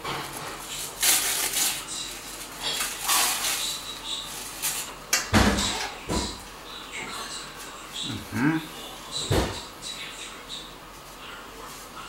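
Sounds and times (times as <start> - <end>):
plastic packaging rustling: 0.0 - 5.7.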